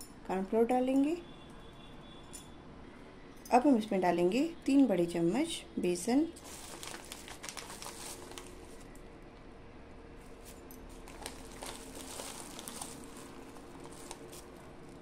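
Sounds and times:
soft rustles: 6.4s - 9.0s, 10.2s - 15.0s.

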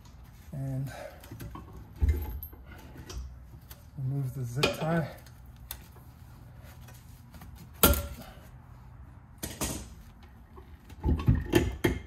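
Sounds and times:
clunks and knocks of tools: 1.2s - 3.3s, 9.4s - 12.0s.

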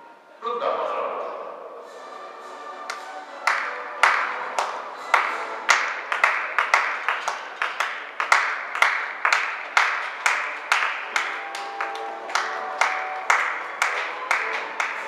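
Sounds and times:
clap-like percussive beat: 2.8s - 15.0s
faint held melody: 10.7s - 15.0s.

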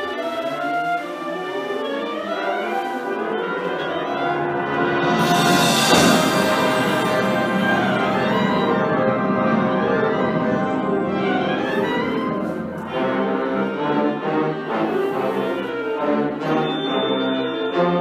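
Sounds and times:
concert band playing: 3.8s - 15.1s, 16.0s - 18.0s.

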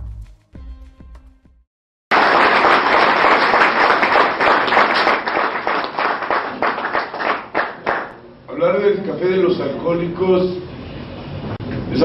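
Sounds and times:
audience applauding: 2.1s - 8.2s.

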